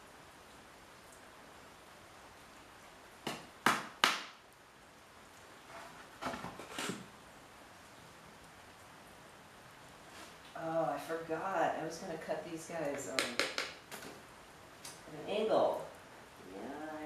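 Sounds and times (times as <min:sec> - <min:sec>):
hammer striking nail into wood: 0:03.3 - 0:04.3.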